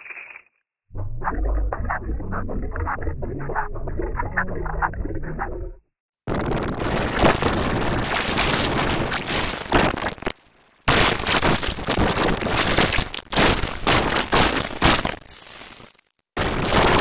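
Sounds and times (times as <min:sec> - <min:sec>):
distorted crackling noise: 0:06.3 - 0:17.0.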